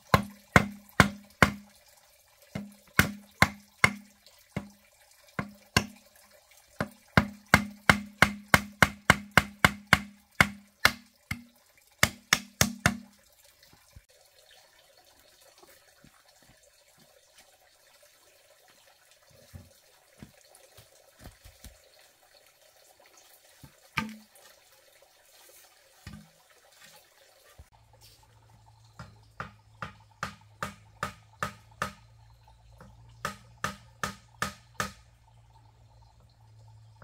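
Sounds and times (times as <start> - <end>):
bamboo poles knocking: 0.0 - 1.7, 2.6 - 4.8, 5.4 - 6.0, 6.8 - 13.2, 23.6 - 24.4, 26.1 - 26.4, 29.0 - 32.1, 32.8 - 35.1
tool striking bamboo: 0.0 - 1.7, 2.6 - 4.7, 5.4 - 6.0, 6.8 - 13.1, 24.0 - 24.3, 29.4 - 32.0, 33.2 - 35.1.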